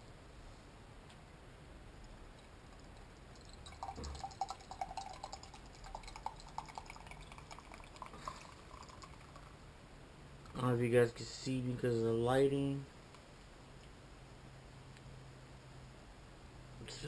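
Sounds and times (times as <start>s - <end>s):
drink pouring into a glass: 2.4s - 9.6s.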